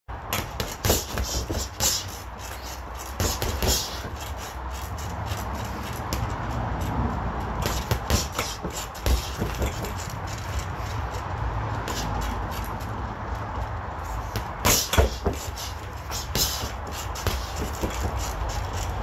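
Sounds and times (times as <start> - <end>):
gloves punching padded ball: 0.4 - 4.5, 7.6 - 10.1, 14.3 - 18.4.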